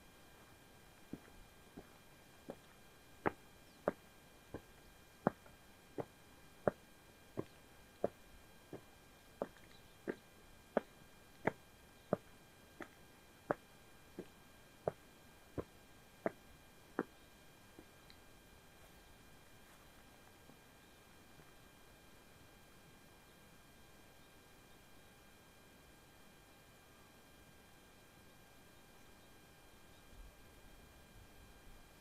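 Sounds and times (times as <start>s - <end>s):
footsteps walking: 0.4s - 18.1s, 18.8s - 20.6s.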